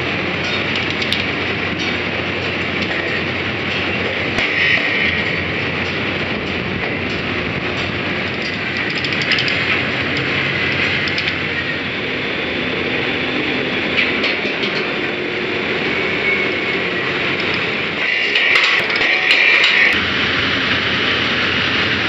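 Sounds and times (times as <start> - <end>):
loud machinery din: 0.0 - 22.0
metal clanks and rattling: 0.4 - 11.5, 14.0 - 15.0, 17.4 - 20.0.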